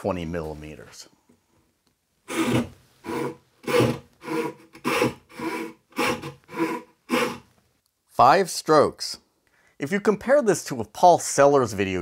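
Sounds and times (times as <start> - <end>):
saw rasping through wood: 2.3 - 7.4.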